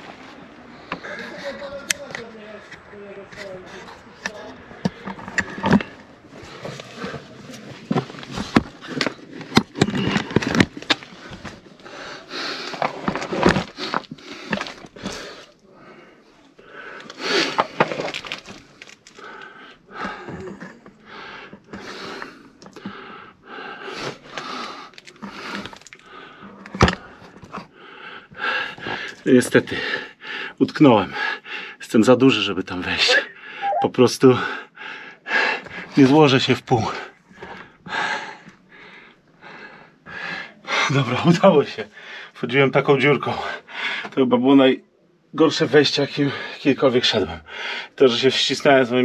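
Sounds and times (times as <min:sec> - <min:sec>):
grit and rubble scraping: 0:02.1 - 0:11.8, 0:12.6 - 0:15.4, 0:17.3 - 0:19.2
man breathing hard: 0:47.5 - 0:48.0.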